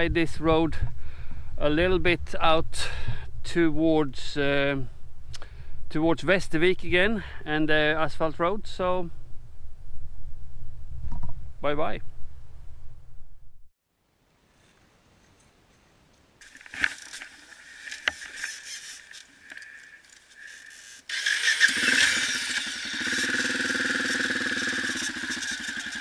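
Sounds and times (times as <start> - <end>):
motorcycle engine running: 21.1 - 26.0.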